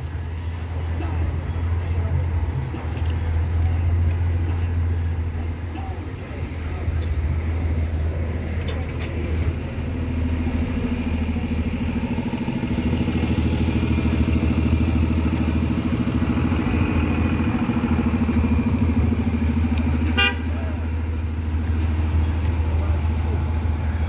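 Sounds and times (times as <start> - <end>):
bus engine driving off: 0.0 - 24.0
bus horn toot: 20.0 - 20.7.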